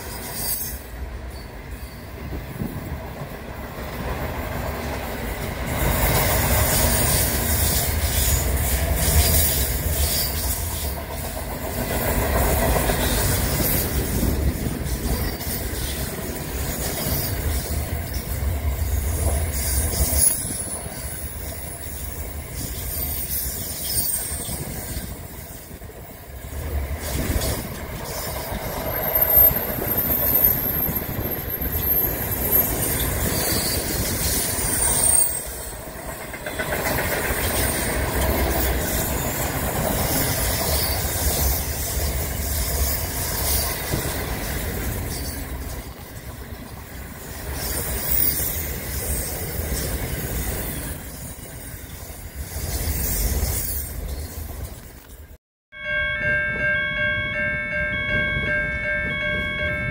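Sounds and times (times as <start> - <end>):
train wheels rumbling on rail: 0.0 - 55.4
high wheel squeals: 19.6 - 26.2, 28.0 - 35.8.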